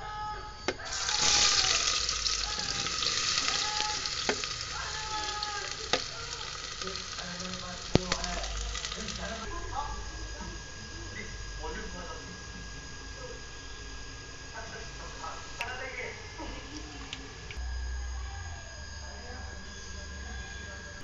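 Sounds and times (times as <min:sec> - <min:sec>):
onions sizzling in hot oil: 0:00.8 - 0:09.5.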